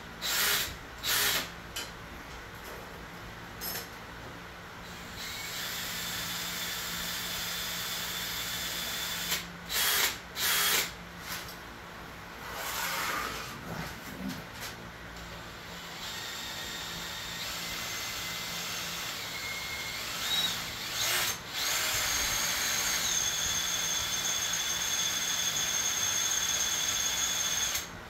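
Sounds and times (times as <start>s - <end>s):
power drill whining: 0.2s - 1.5s, 4.9s - 10.9s, 15.6s - 27.9s.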